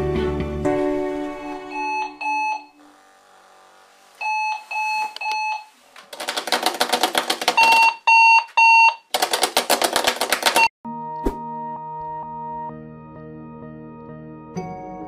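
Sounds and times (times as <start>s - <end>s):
music: 0.0s - 2.8s, 10.8s - 15.0s
alarm clock beeping: 1.4s - 2.8s, 4.2s - 5.7s, 7.6s - 9.1s.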